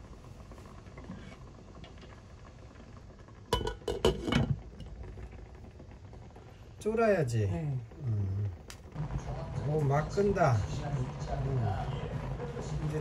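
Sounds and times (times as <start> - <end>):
glass pot lid clinking on pot: 3.6 - 4.6.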